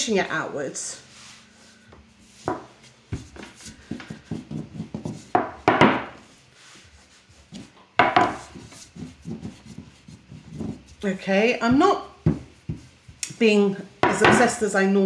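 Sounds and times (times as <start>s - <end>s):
hands rubbing pasta dough: 1.0s - 5.5s, 6.2s - 13.6s
rolling pin knocking on board: 3.9s - 6.2s, 8.0s - 10.9s, 11.7s - 12.9s, 14.0s - 14.5s.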